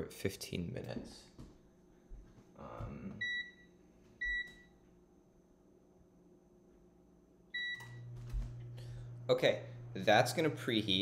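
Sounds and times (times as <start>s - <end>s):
oven control panel beeping: 3.2s - 4.7s, 7.5s - 8.8s.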